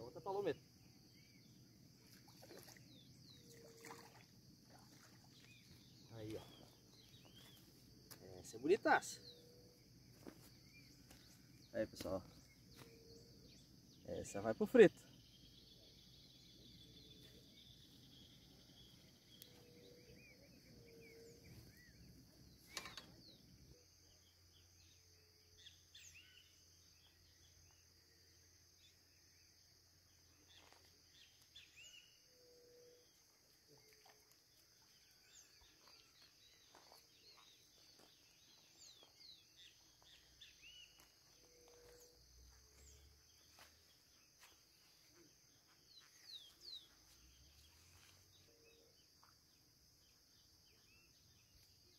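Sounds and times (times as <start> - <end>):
high insect drone: 0.0 - 51.9
small bird chirps: 15.0 - 27.9.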